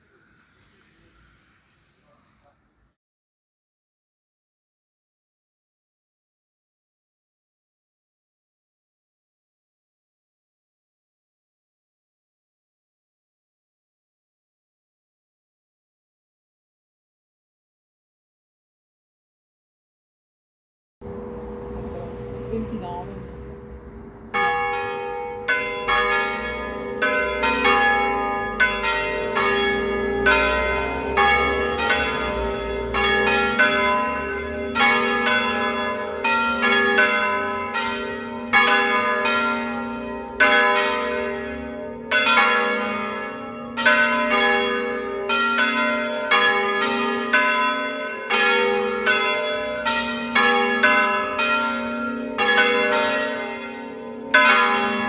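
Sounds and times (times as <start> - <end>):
church bells pealing: 21.0 - 55.0.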